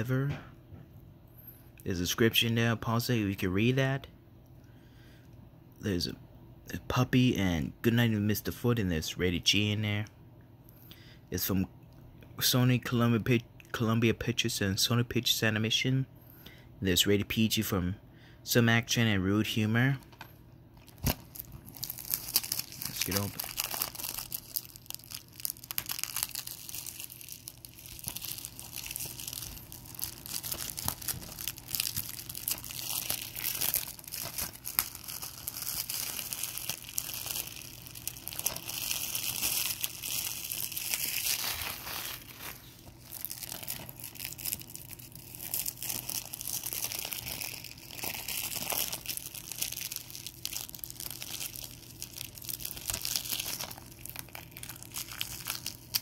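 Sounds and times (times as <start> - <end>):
plastic wrap crinkling: 20.8 - 56.0.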